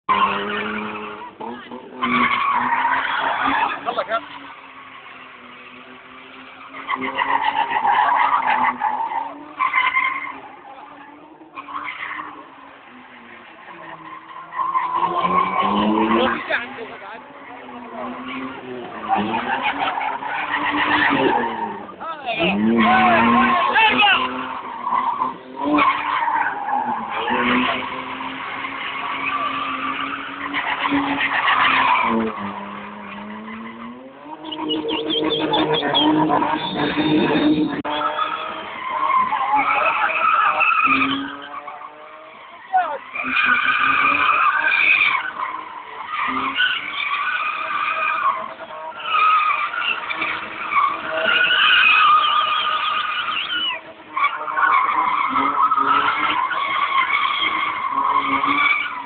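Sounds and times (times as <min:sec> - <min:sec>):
tyres squealing: 0:00.1 - 0:59.0
car engine at steady revs: 0:26.8 - 0:38.8.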